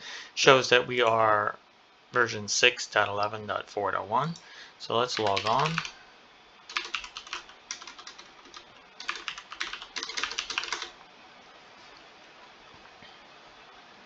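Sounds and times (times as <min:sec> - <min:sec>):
computer keyboard typing: 0:05.1 - 0:06.0, 0:06.7 - 0:11.0.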